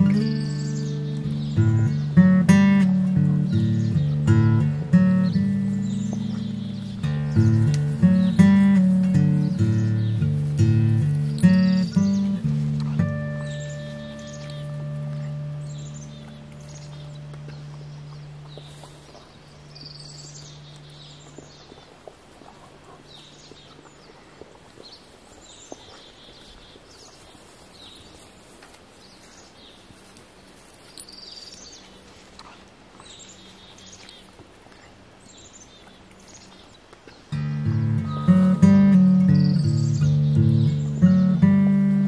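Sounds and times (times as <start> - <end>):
acoustic guitar music: 0.0 - 21.5, 37.3 - 42.0
faint outdoor ambience: 0.0 - 42.0
small birds chirping: 0.0 - 42.0.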